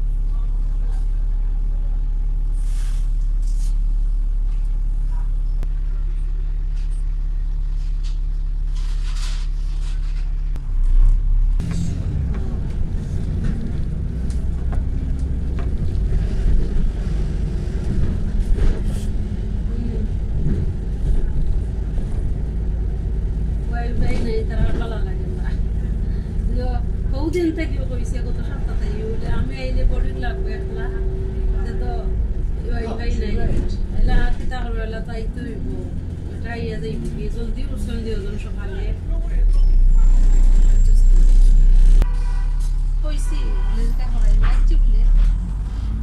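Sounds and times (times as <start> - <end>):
bus engine: 0.0 - 46.0
road noise: 0.0 - 46.0.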